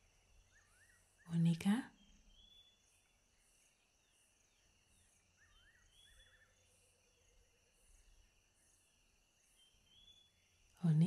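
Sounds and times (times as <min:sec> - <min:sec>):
soft bird chirps: 0:00.0 - 0:11.0.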